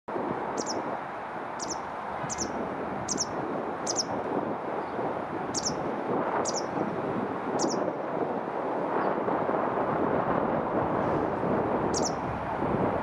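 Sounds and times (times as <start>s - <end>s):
small bird chirping: 0.6s - 0.8s, 1.6s - 4.2s, 5.5s - 5.8s, 6.4s - 6.7s, 7.6s - 7.8s, 12.0s - 12.2s.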